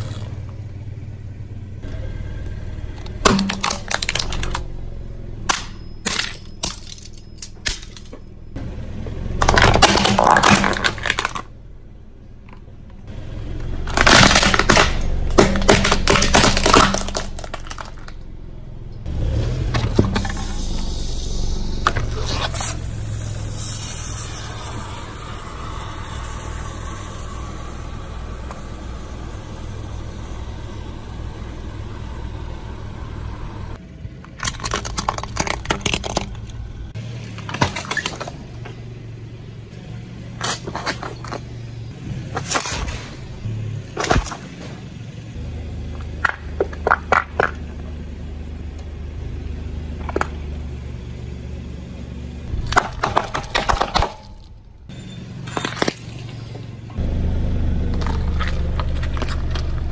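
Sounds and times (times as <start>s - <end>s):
low car rumble: 0.0s - 59.9s
plastic toy cracking under tyre: 3.0s - 4.6s, 9.4s - 11.5s, 13.9s - 18.2s, 34.2s - 36.6s, 52.6s - 54.5s, 57.9s - 59.9s
plastic bottles crackling: 9.4s - 11.4s, 34.3s - 36.6s
aerosol can hissing: 22.5s - 27.4s.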